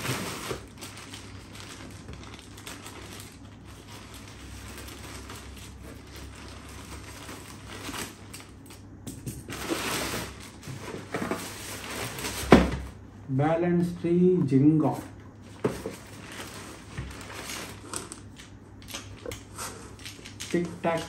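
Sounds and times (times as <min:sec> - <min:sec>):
plastic bag crinkling: 0:00.0 - 0:12.6, 0:15.4 - 0:19.3.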